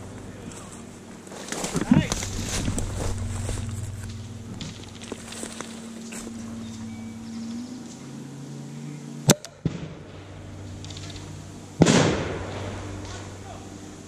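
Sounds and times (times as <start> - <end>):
loud burst: 9.6 - 13.7.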